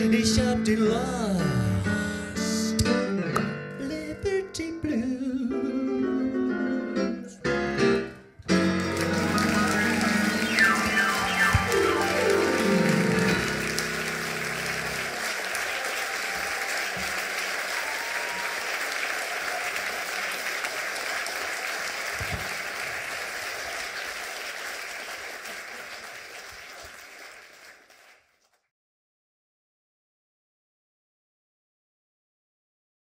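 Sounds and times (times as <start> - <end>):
piano chord: 6.0 - 15.2
audience applauding: 8.5 - 28.6.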